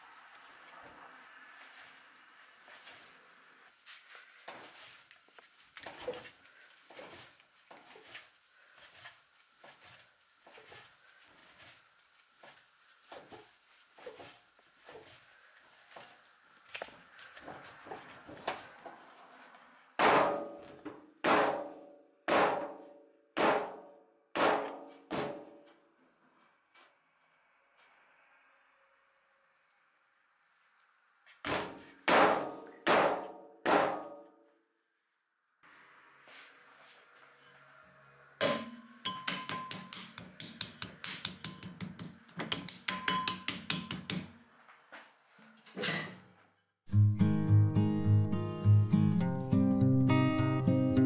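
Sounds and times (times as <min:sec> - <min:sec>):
clay slamming on wooden board: 0:31.5 - 0:34.2
hands patting clay: 0:39.5 - 0:44.3.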